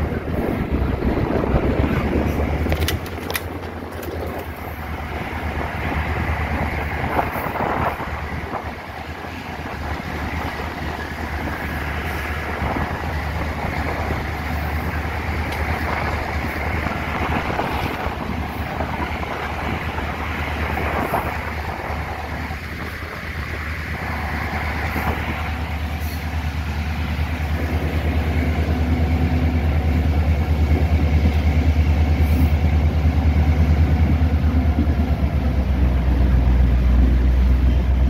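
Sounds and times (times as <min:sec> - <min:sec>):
wind on microphone: 0:00.0 - 0:26.2
diesel locomotive engine drone: 0:00.0 - 0:38.0
wheel and rail noise: 0:00.0 - 0:38.0.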